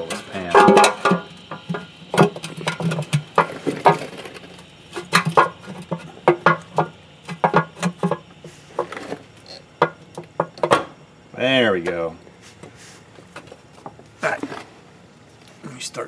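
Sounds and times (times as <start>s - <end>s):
metal oil pan knocking and clicking: 5.0s - 8.2s.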